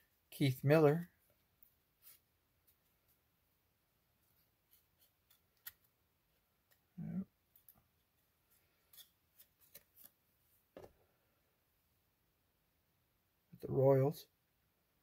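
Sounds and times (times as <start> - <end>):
card clicks and scrapes: 4.4 - 5.9, 8.6 - 10.2.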